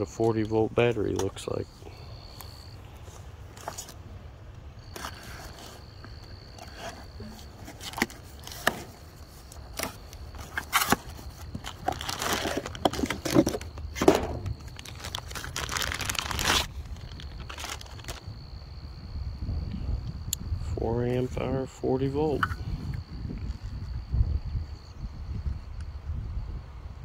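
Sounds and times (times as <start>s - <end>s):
plastic bag crinkling: 9.8s - 18.2s.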